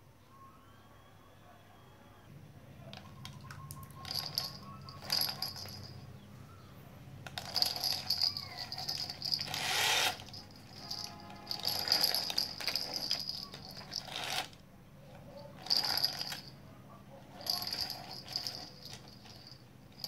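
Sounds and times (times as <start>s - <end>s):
plastic toy rattling on tiled floor: 2.9s - 6.0s, 7.2s - 16.6s, 17.2s - 20.0s.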